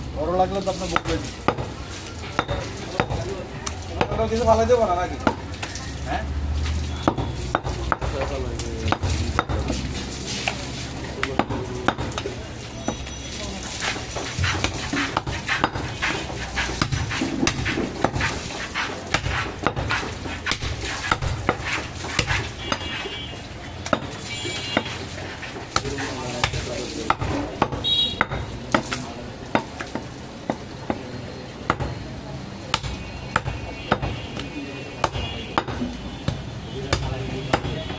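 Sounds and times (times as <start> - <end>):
knife chopping meat on wood block: 1.0 - 1.8, 5.2 - 5.6, 7.0 - 9.8, 11.2 - 12.3, 13.8 - 23.1, 23.8 - 24.1, 24.7 - 32.0, 32.7 - 37.9.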